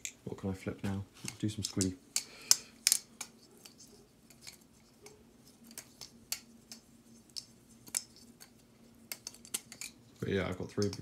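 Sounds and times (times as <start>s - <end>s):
faint steady hum: 0.0s - 11.0s
metallic clicks of knife handles: 9.1s - 10.0s.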